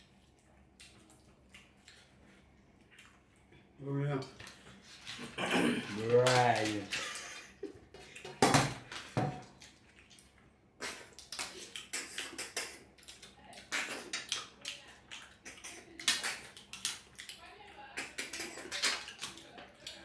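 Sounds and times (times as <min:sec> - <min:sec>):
wet sucking and chewing: 0:00.0 - 0:03.7, 0:09.5 - 0:20.0.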